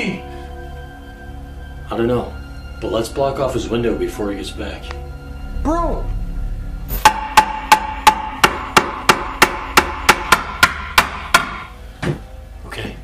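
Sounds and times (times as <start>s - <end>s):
hammer striking nails into wood: 7.1s - 12.2s.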